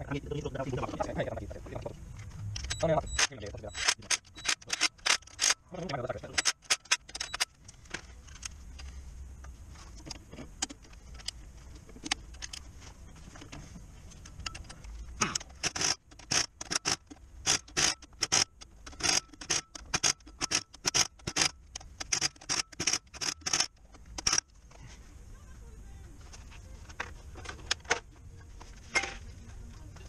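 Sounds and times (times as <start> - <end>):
pneumatic impact wrench bursts: 15.3 - 24.4.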